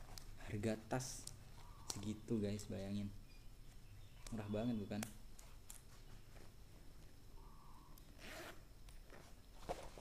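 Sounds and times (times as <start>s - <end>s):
bag zipper rasp: 8.2s - 8.6s.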